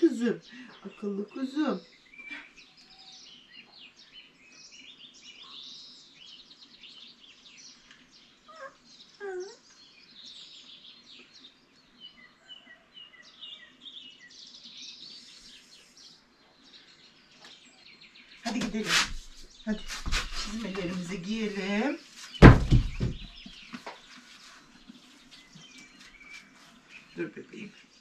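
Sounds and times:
songbirds chirping and singing: 0:00.0 - 0:28.0.

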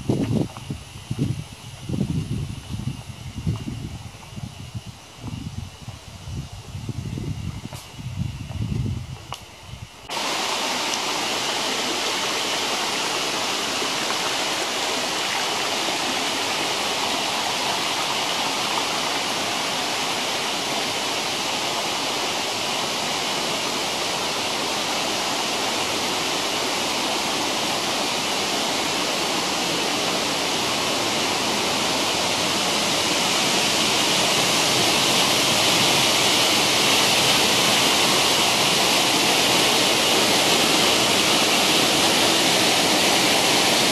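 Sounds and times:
stream and waterfall rushing: 0:00.0 - 0:05.2, 0:10.0 - 0:43.9.

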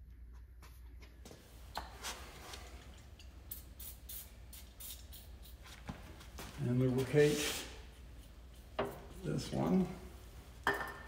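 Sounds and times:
aerosol spray hissing: 0:03.5 - 0:05.8, 0:07.1 - 0:09.5.

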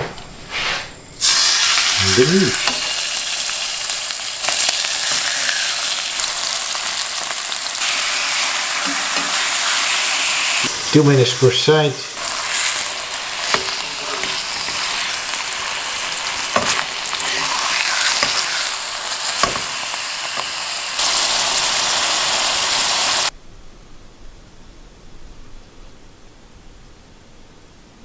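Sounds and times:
meat sizzling in oil: 0:01.2 - 0:23.3.

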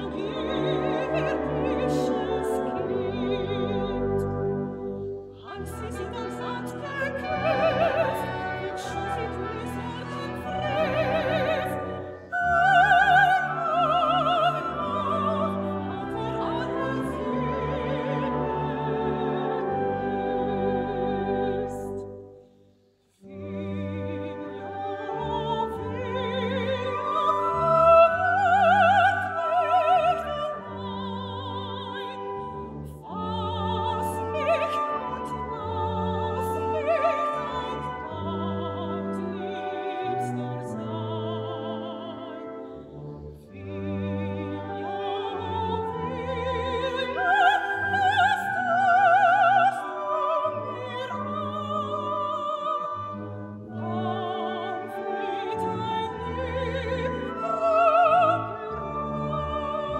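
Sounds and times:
operatic soprano singing: 0:00.0 - 0:22.2, 0:23.2 - 0:59.9.

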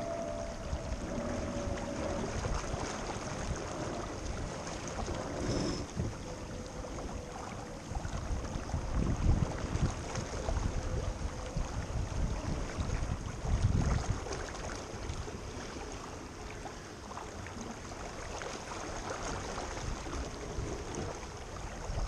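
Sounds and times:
wind buffeting microphone: 0:00.0 - 0:16.8
water noise: 0:00.0 - 0:22.0.

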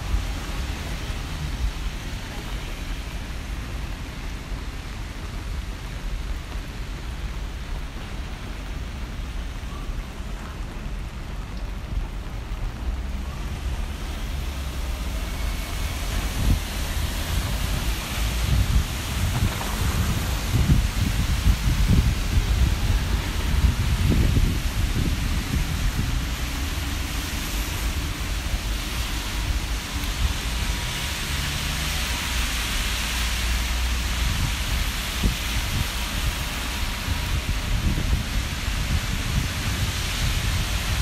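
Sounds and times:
rain hiss: 0:00.0 - 0:41.0.

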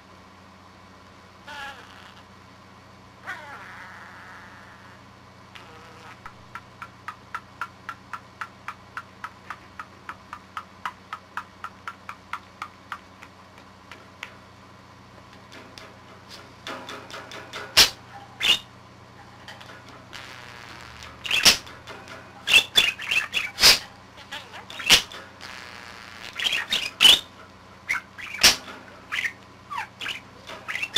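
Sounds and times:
steady low hum: 0:00.0 - 0:30.9
budgerigar chirps: 0:18.4 - 0:18.7, 0:21.2 - 0:21.6, 0:22.5 - 0:27.3, 0:27.9 - 0:30.9.

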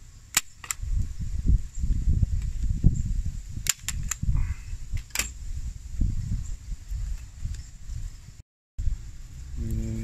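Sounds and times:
loud uneven low rumble: 0:08.8 - 0:10.0.

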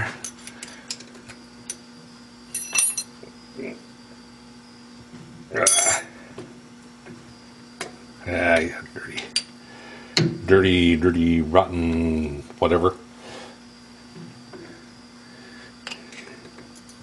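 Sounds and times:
hex keys clinking on metal: 0:02.5 - 0:03.1.

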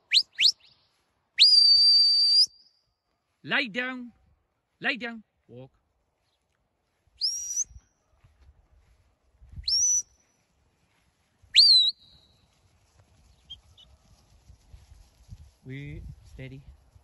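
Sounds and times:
rising whistle commands: 0:01.4 - 0:02.7, 0:07.2 - 0:07.8, 0:09.7 - 0:10.2, 0:11.6 - 0:12.3.

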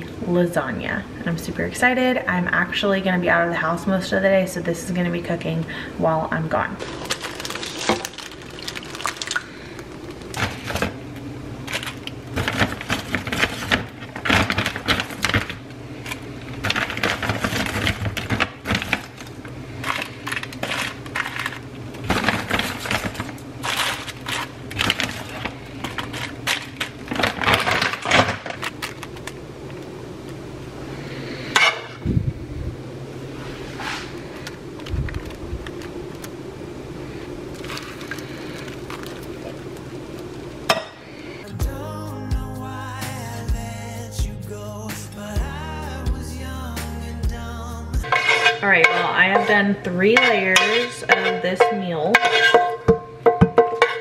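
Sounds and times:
plastic liner crinkling: 0:06.8 - 0:11.0, 0:11.6 - 0:29.4, 0:34.4 - 0:36.4, 0:37.5 - 0:40.4
can and utensils clinking on pot: 0:48.0 - 0:54.0.

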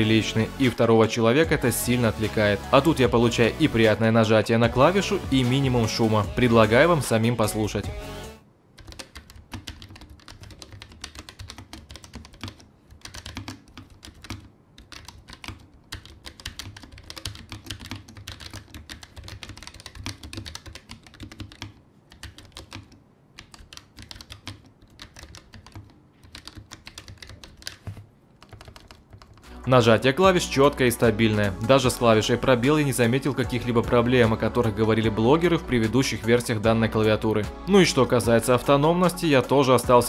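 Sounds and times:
mechanical keyboard typing: 0:08.8 - 0:29.8.

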